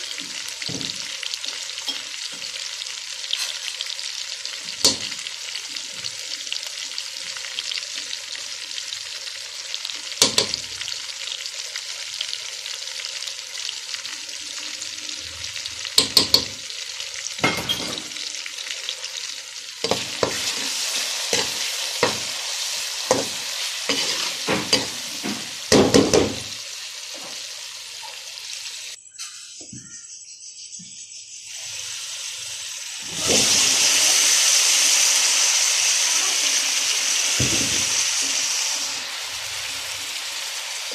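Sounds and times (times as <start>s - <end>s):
masala sizzling in hot oil: 0.0s - 29.0s, 31.4s - 40.9s
spatula scraping and knocking pan: 19.8s - 26.5s.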